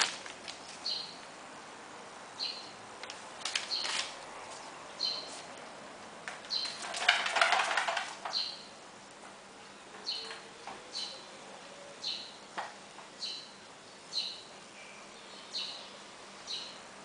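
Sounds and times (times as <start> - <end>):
puppy claws scratching tray: 6.5 - 8.6.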